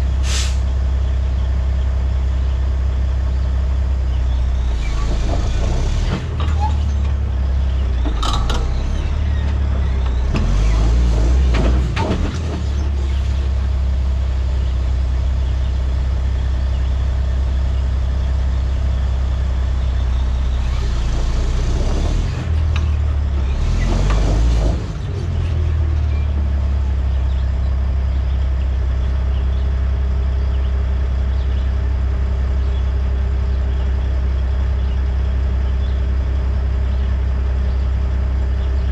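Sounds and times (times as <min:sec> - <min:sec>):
diesel engine idling: 0:00.0 - 0:38.9
air hissing: 0:00.2 - 0:00.6.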